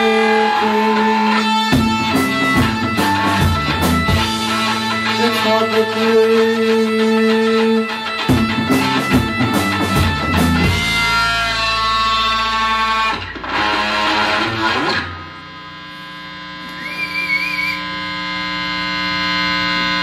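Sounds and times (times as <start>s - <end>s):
rock band playing: 0.0s - 16.0s
sustained guitar drone: 0.0s - 20.0s
amplifier hum: 10.0s - 20.0s
high feedback tone: 15.7s - 20.0s.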